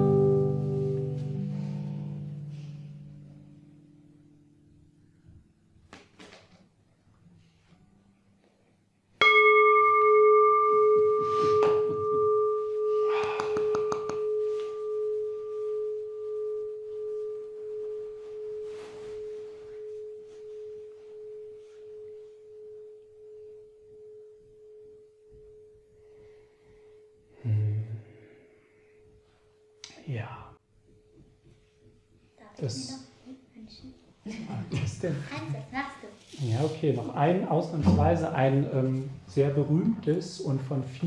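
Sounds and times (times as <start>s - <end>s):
singing bowl ringing: 9.2s - 27.4s.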